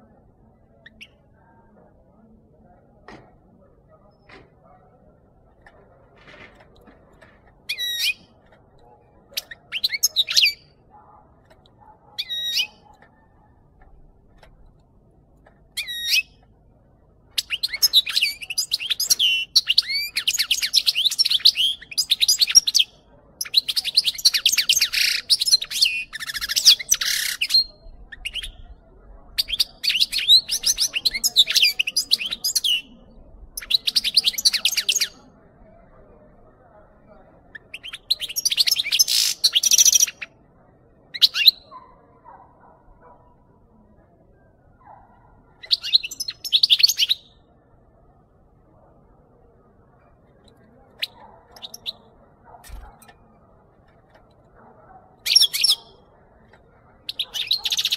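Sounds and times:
rapid twittering birdsong: 0.0 - 1.6, 50.0 - 54.4, 57.0 - 57.9.

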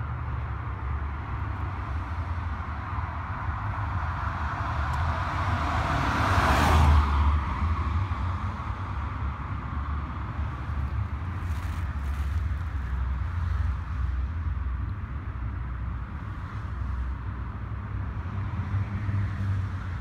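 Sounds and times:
car driving past in tunnel: 4.4 - 8.0.

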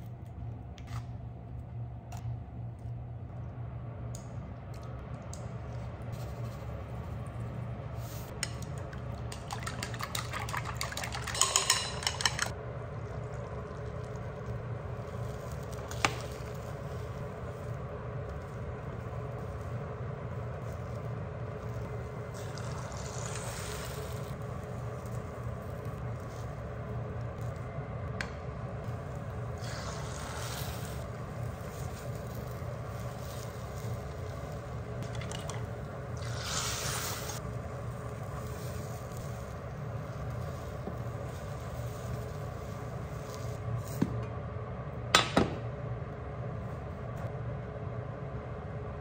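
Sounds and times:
steady low hum: 0.0 - 49.0
egg sizzling in a pan: 8.3 - 27.5, 28.9 - 43.8.

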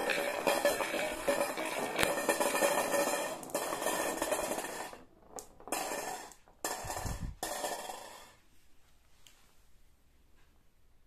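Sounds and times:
marbles rattling down wooden track: 0.0 - 8.4.

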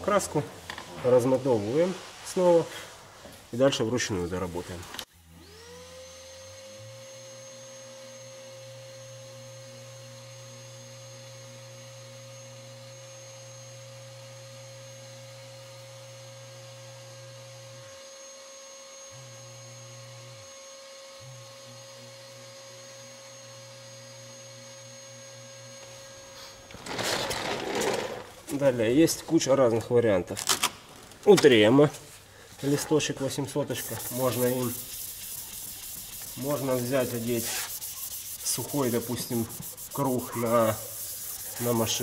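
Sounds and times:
orbital sander whining: 19.0 - 26.4, 33.6 - 42.0.

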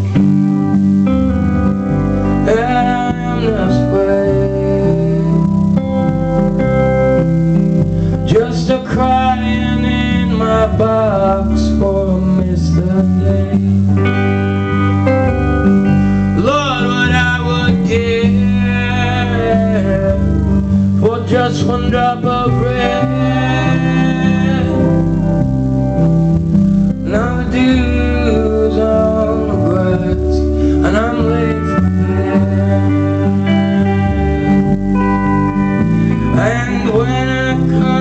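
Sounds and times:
guitars: 0.0 - 38.0
lap steel guitar: 0.0 - 38.0
steady bass: 0.0 - 38.0
man singing: 2.2 - 6.5, 8.2 - 14.2, 16.3 - 25.4, 27.0 - 34.8, 35.8 - 38.0.

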